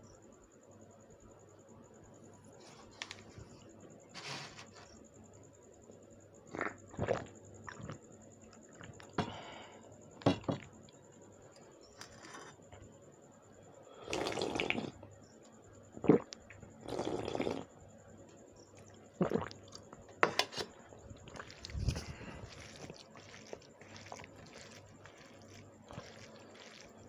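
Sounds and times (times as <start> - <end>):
person gulping water: 6.5 - 8.0, 14.0 - 15.0, 16.0 - 17.7, 18.8 - 20.0, 21.0 - 27.0.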